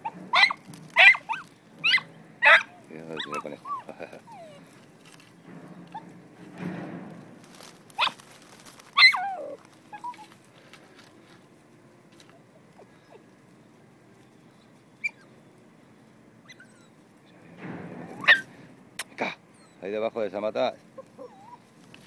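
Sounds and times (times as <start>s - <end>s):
dog whining: 0.0s - 4.7s, 9.0s - 10.3s, 16.4s - 17.4s, 18.2s - 18.5s, 19.2s - 19.9s, 21.0s - 21.7s
faint rustling: 0.0s - 22.0s
short squeak: 18.1s - 18.5s.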